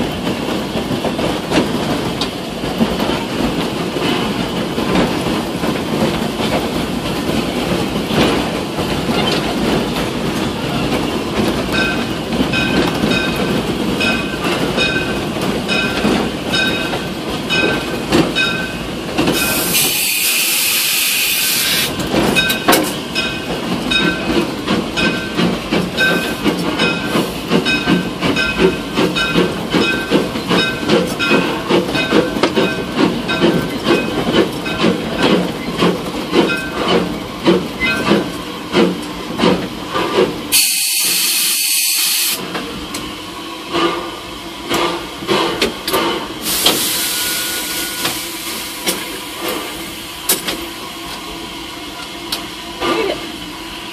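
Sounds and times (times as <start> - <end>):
steam locomotive chuffing: 0.0 - 53.9
steam hissing: 19.4 - 22.0, 40.5 - 42.4, 46.2 - 50.2.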